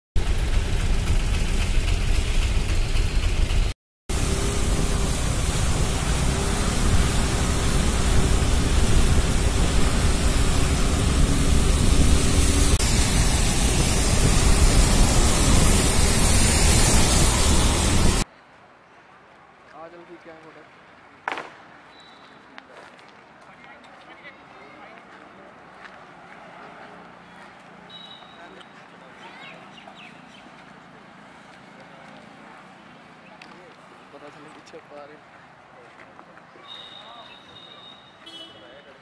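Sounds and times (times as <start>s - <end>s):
engine drone: 0.2s - 18.2s
tyres hissing on wet asphalt: 0.2s - 18.3s
wind rushing: 4.1s - 18.2s.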